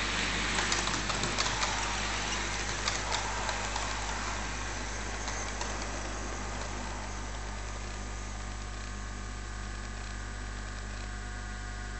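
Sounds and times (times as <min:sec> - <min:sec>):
wheels clicking over rail joints: 0:00.0 - 0:08.7
model train rolling whir: 0:00.0 - 0:10.3.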